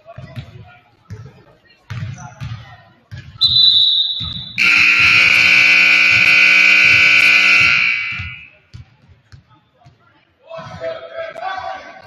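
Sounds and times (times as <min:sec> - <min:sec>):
scoreboard buzzer blast: 0:04.4 - 0:08.5.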